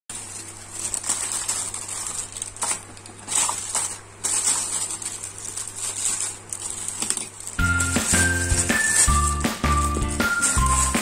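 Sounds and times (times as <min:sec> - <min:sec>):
plastic bag crinkling: 0:00.1 - 0:11.0.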